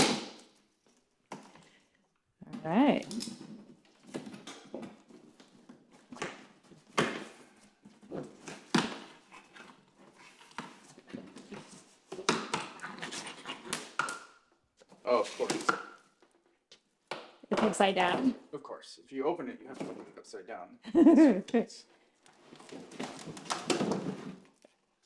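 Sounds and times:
cardboard rustling and scraping: 14.9 - 15.7, 22.3 - 24.7.

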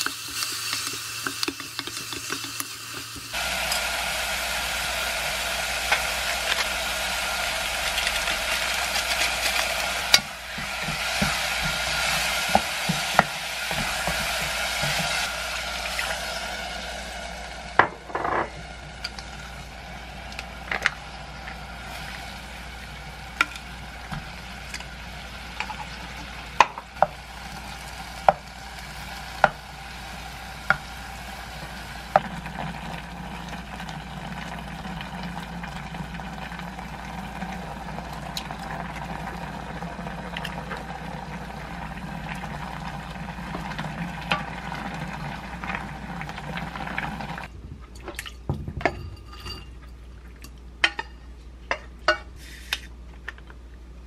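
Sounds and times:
stew bubbling in a saucepan: 0.0 - 51.1.

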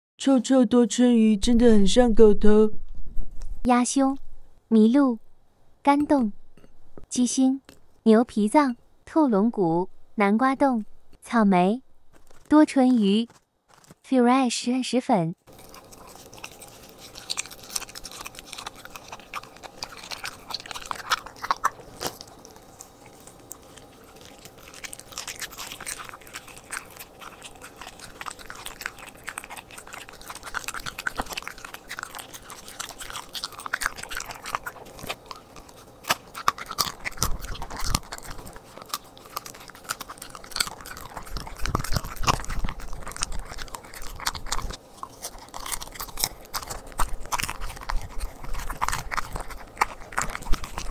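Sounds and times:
dog chewing raw meat: 15.5 - 50.9.

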